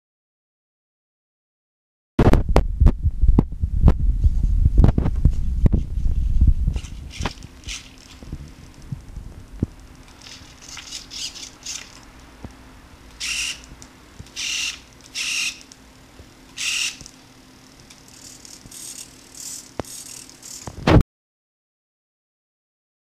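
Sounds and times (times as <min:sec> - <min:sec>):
faint steady hum: 0:02.5 - 0:21.0
servos whirring: 0:06.7 - 0:08.9, 0:09.7 - 0:12.2, 0:13.1 - 0:15.8, 0:16.5 - 0:20.9.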